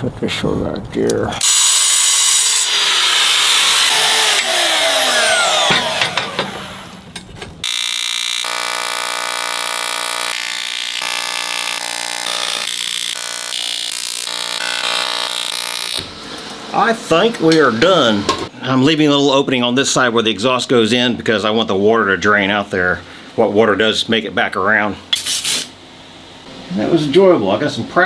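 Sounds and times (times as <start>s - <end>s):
power saw cutting metal: 1.4s - 16.1s
welding arc buzzing: 1.4s - 16.2s, 25.2s - 25.8s.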